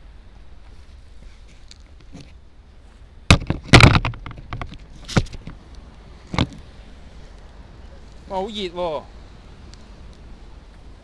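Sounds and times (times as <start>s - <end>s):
sharp knocks and clattering: 3.3s - 5.6s.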